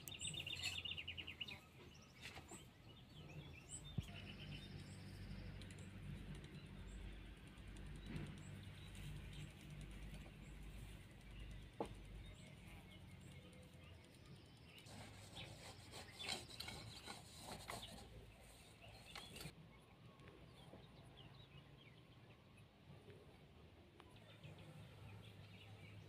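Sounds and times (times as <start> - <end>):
hands rubbing dough in clay bowl: 14.8 - 19.5.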